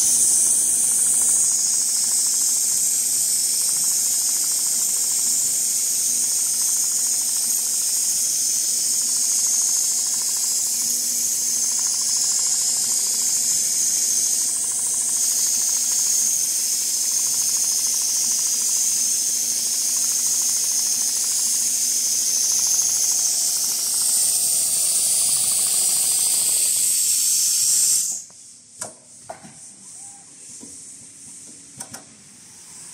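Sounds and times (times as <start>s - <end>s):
sewing machine hissing: 0.0s - 28.6s, 32.2s - 32.9s.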